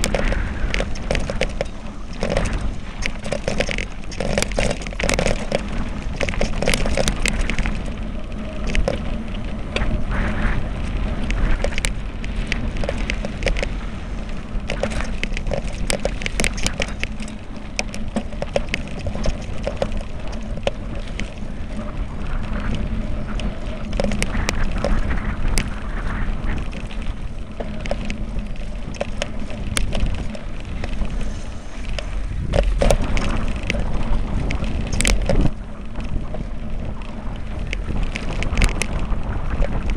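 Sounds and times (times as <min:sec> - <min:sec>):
tyres crunching on dirt: 0:00.0 - 0:08.1
bike rattling over stones: 0:00.0 - 0:39.9
wind rumble on microphone: 0:00.0 - 0:39.9.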